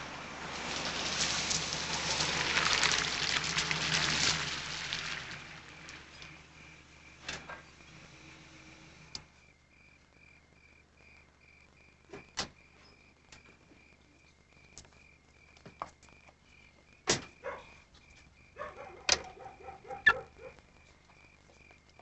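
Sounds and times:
crickets chirping: 3.8s - 22.0s
short pitched calls: 19.8s - 20.4s.

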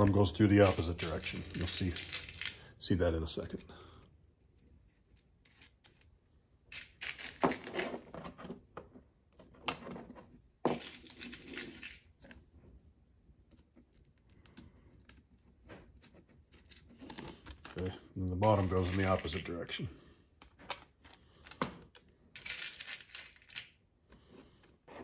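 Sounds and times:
small hardware clicking and scraping: 13.5s - 19.6s.

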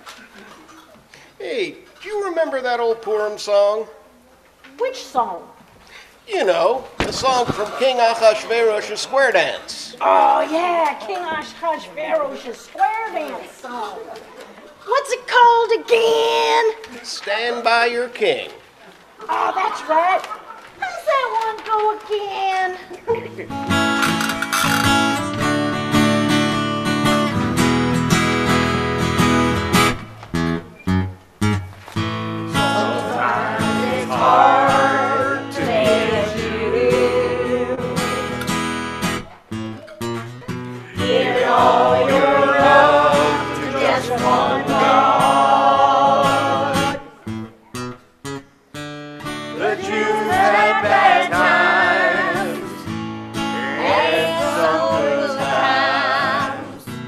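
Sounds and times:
acoustic guitar: 0.0s - 57.0s
person singing: 32.6s - 38.5s, 40.9s - 47.1s.

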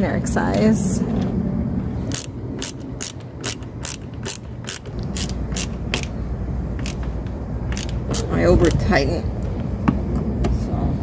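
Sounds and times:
ratcheting screwdriver clicking: 2.1s - 6.1s, 7.7s - 8.8s.

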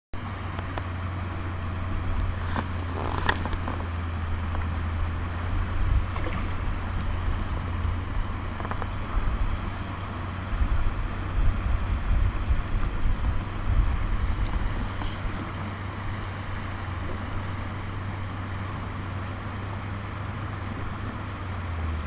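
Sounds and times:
stream water rippling: 0.2s - 22.0s
wind rumble on microphone: 0.5s - 22.0s
water splashes: 2.1s - 10.0s, 12.3s - 20.0s.

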